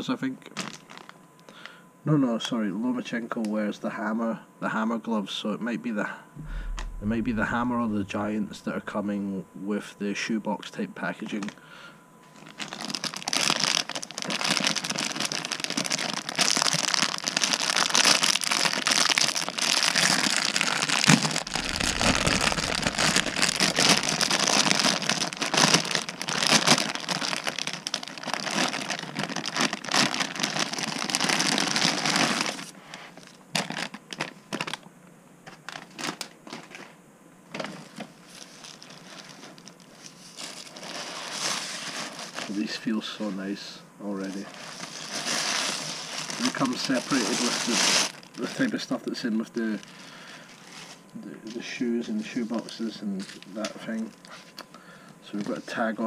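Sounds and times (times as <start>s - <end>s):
plastic bag crinkling: 0.6s - 1.2s, 12.4s - 32.6s, 44.4s - 48.8s
tissue paper rustling: 19.6s - 29.8s.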